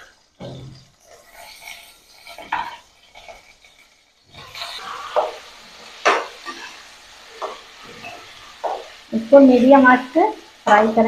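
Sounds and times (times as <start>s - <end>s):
metal spatula scraping pan: 0.0s - 9.7s
potatoes sizzling in hot oil: 0.0s - 11.0s.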